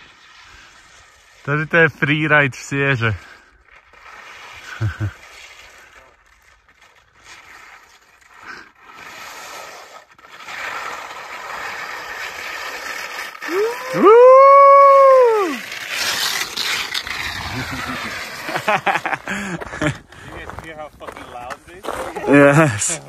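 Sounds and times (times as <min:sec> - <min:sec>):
skis scraping over snow: 0:00.0 - 0:23.0
person whooping: 0:13.4 - 0:15.8.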